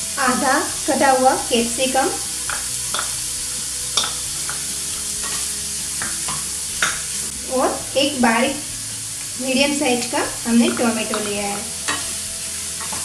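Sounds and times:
vegetables sizzling in oil: 0:00.0 - 0:13.0
spatula tapping and scraping pan: 0:02.4 - 0:03.2, 0:04.0 - 0:07.2, 0:10.6 - 0:12.2, 0:12.8 - 0:13.0.

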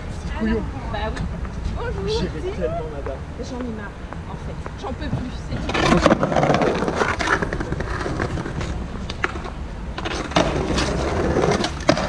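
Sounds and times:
skateboard rolling on stone paving: 0:04.8 - 0:12.0
skateboard wheels clacking on joints: 0:05.1 - 0:12.0.

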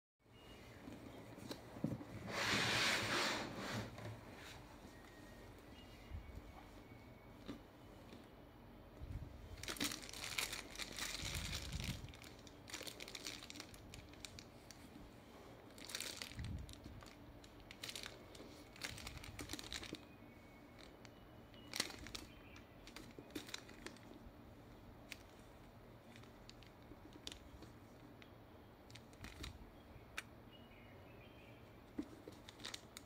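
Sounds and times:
plastic film crinkling: 0:09.5 - 0:15.0, 0:15.7 - 0:24.3, 0:26.0 - 0:28.1, 0:28.9 - 0:29.6, 0:32.0 - 0:33.0.

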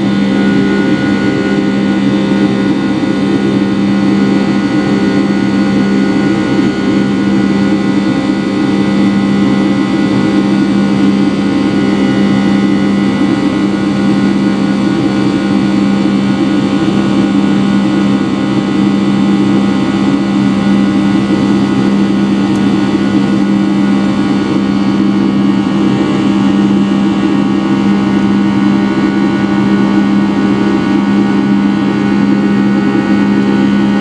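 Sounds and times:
jet engine drone from cabin: 0:00.0 - 0:34.0.

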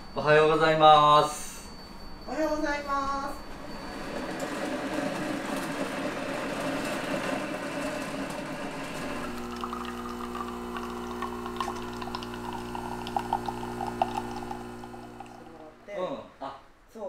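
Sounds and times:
coffee machine grinder whirring: 0:03.6 - 0:15.9
pump hum: 0:04.6 - 0:15.9.

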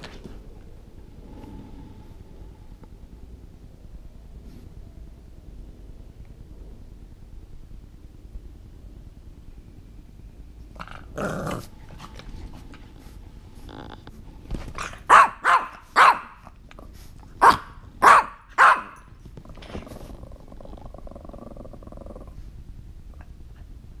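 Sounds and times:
dog growling: 0:10.7 - 0:12.5, 0:13.5 - 0:14.2, 0:19.4 - 0:22.5
dog barking: 0:14.8 - 0:16.4, 0:17.4 - 0:19.1.

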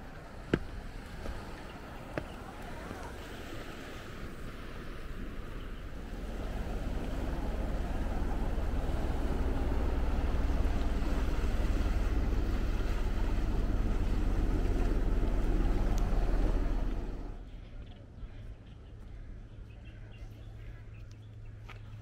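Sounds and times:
sea surf washing on rocks: 0:00.0 - 0:17.3
wind rumbling on microphone: 0:00.0 - 0:19.0.

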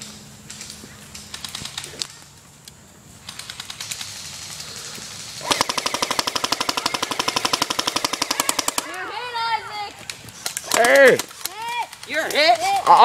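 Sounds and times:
airsoft gun full-auto fire: 0:05.2 - 0:09.0.

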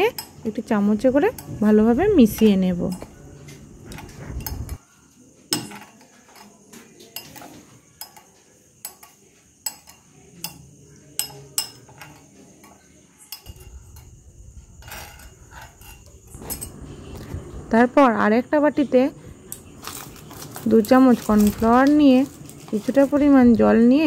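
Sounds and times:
spoon clinking against glass bowl: 0:02.3 - 0:03.2, 0:07.1 - 0:14.1.

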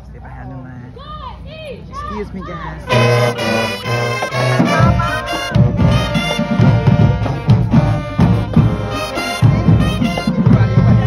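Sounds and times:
brass horns: 0:02.9 - 0:11.0
marching band playing: 0:02.9 - 0:11.0
drum hits: 0:04.6 - 0:07.0.

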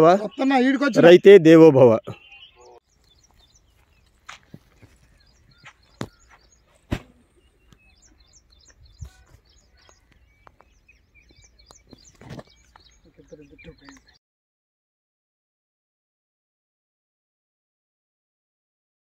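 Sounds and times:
small birds chirping: 0:00.0 - 0:14.2.

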